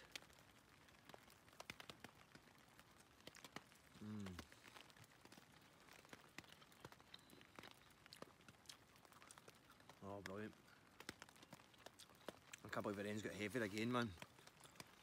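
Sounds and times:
rain ticking on a tarp: 0.0 - 15.0.

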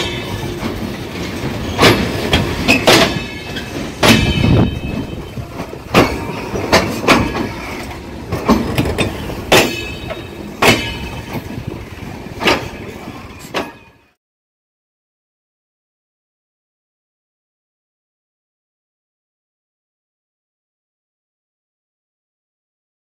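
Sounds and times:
train coaches rumbling past: 0.0 - 14.2
wheels clacking over rail joints: 0.0 - 14.2.

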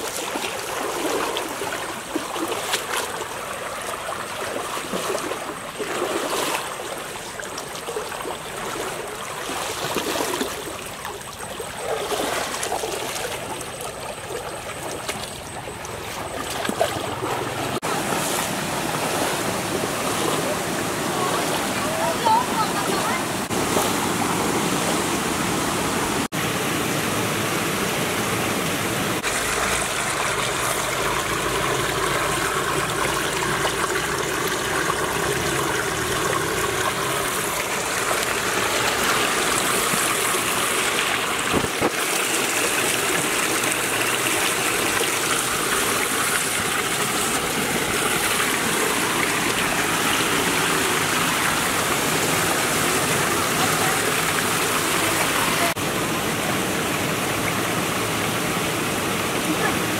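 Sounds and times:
stream water rushing over rocks: 0.0 - 59.9.

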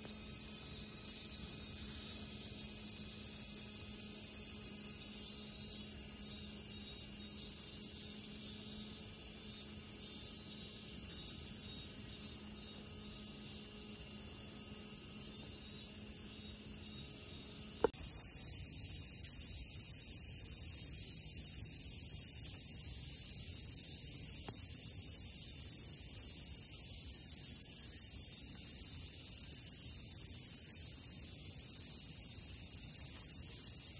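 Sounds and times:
insect chorus shrilling: 0.0 - 33.9.

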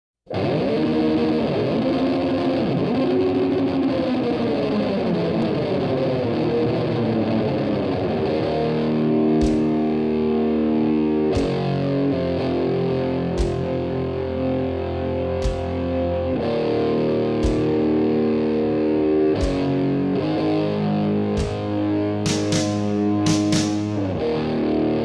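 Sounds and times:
distorted electric guitar: 0.3 - 25.0
slow sustained guitar chords: 0.3 - 25.0
drum hits: 9.4 - 9.8, 11.4 - 11.8, 13.4 - 13.8, 15.4 - 15.8, 17.4 - 17.8, 19.4 - 19.8, 21.4 - 21.7, 22.3 - 24.0.

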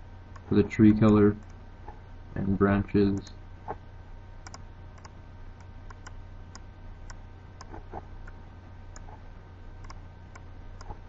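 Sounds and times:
steady low hum: 0.0 - 11.0
computer mouse clicking: 4.4 - 9.2, 9.8 - 11.0.

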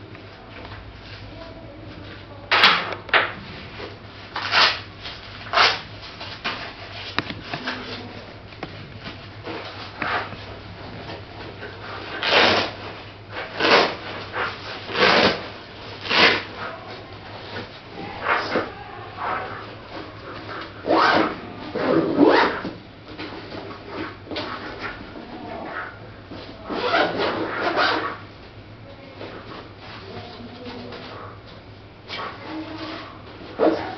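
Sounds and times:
low steady hum: 0.0 - 33.9
bag rustling and scraping: 9.2 - 22.6.

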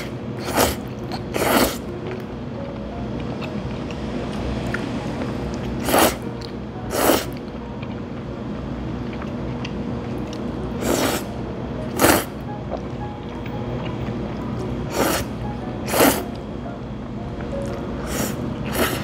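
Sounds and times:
person eating: 0.0 - 2.2, 4.6 - 8.2, 9.0 - 16.4, 17.4 - 19.0
noodles slurped: 0.4 - 1.8, 5.8 - 6.2.

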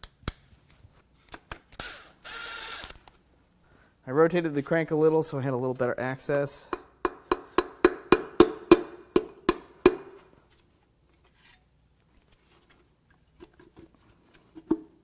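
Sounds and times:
hammer striking metal: 6.7 - 10.3.

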